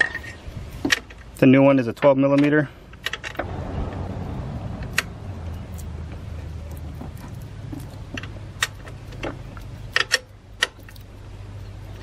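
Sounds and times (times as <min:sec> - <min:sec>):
steady low hum: 0:03.4 - 0:12.0.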